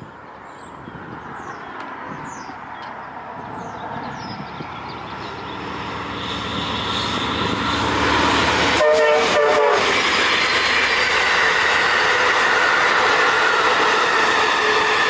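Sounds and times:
train cars rushing past: 0.0s - 15.0s
train horn: 8.1s - 10.1s.

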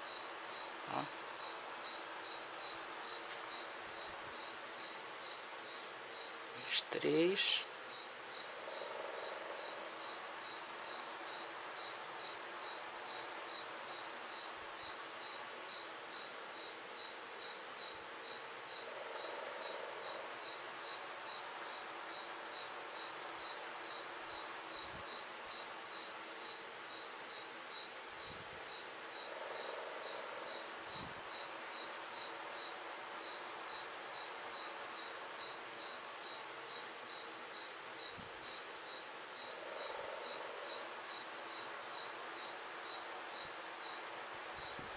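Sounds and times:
lower insect chirps: 0.0s - 44.0s
insects trilling: 0.0s - 44.9s
steady hiss: 0.0s - 44.9s.

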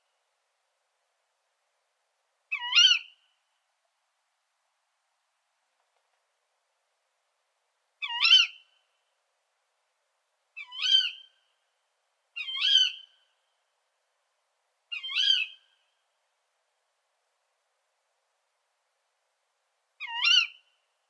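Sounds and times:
owl contact calls: 14.9s - 15.7s, 20.0s - 20.7s.

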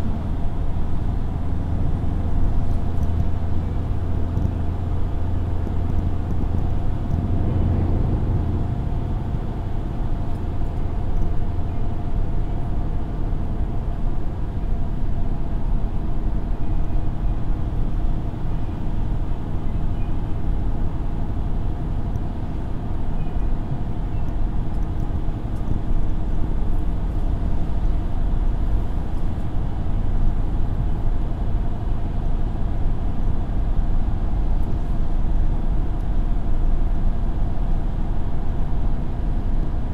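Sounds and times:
vehicle engine and tyre rumble: 0.0s - 39.9s
deep hum: 5.1s - 12.0s.

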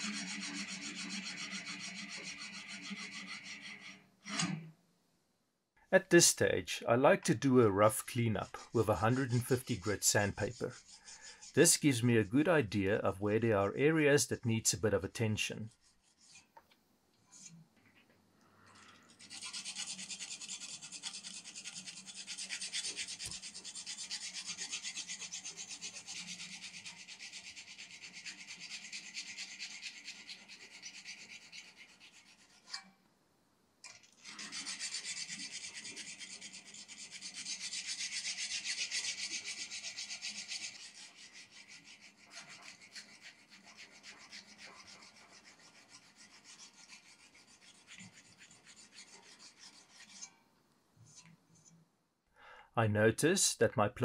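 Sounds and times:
sandpaper rubbing on steel blade: 0.0s - 4.0s, 7.6s - 13.1s, 15.6s - 16.5s, 17.2s - 17.6s, 19.1s - 32.8s, 33.9s - 50.3s.

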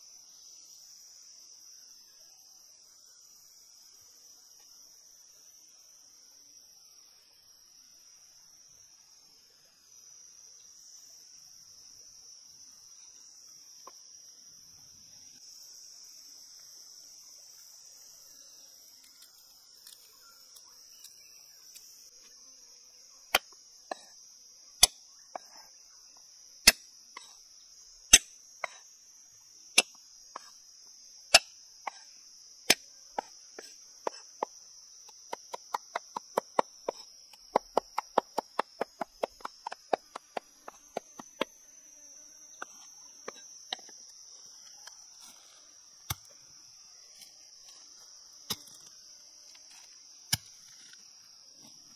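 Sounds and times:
insects buzzing: 0.0s - 51.9s
cleaver chopping on wooden block: 31.3s - 32.1s, 32.7s - 41.6s.

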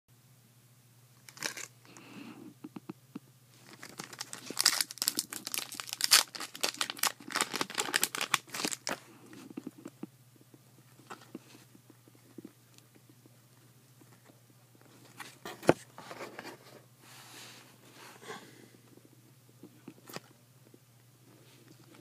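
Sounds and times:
cards rustling: 1.2s - 1.7s, 3.6s - 10.0s
foil wrapper tearing and crinkling: 1.2s - 1.7s, 3.6s - 9.0s.

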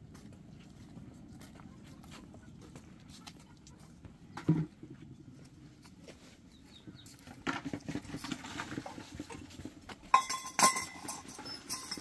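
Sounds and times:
metal or glass clinking: 10.1s - 12.0s
sharp ringing clinks: 10.1s - 12.0s.

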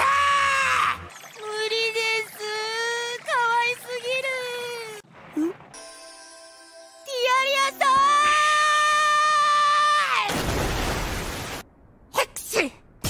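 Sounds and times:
high-voiced cartoon wail: 0.0s - 3.6s, 7.4s - 10.4s.

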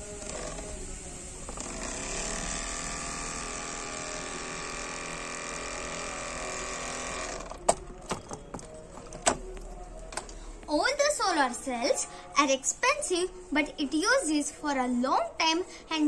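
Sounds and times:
small electric motor whine: 0.0s - 7.6s.

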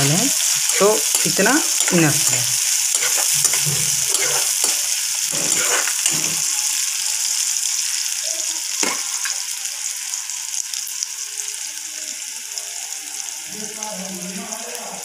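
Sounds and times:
onions sizzling in hot oil: 0.0s - 15.0s
metal spoon scraping and stirring: 0.3s - 6.7s.

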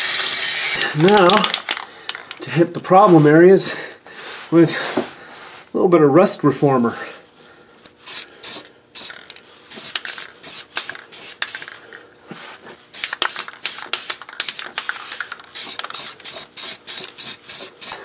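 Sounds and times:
aerosol spray bursts hissing: 9.7s - 11.7s, 15.5s - 18.0s.

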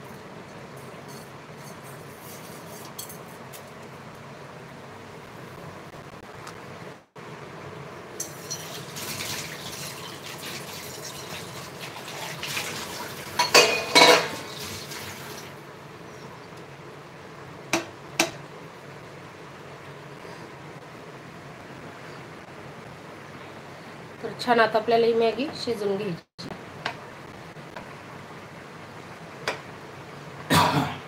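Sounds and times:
water bubbling in a pan: 8.1s - 15.7s.

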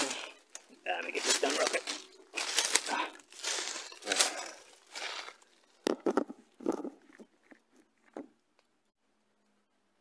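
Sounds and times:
dry leaves crunching: 0.0s - 6.2s.

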